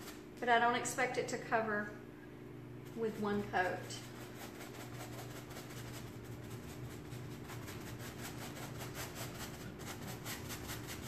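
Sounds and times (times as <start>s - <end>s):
steady low hum: 0.0s - 11.0s
paintbrush scrubbing fabric: 2.8s - 11.0s.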